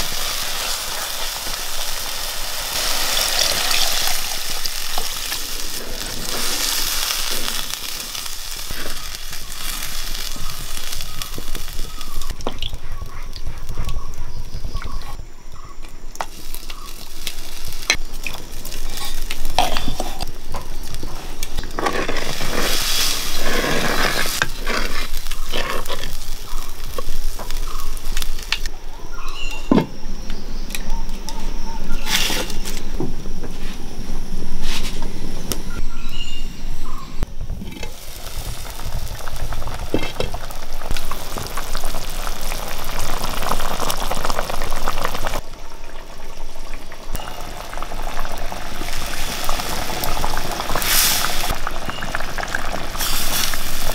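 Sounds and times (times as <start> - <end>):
food sizzling in hot oil: 0.0 - 13.2, 16.3 - 28.7, 37.8 - 53.9.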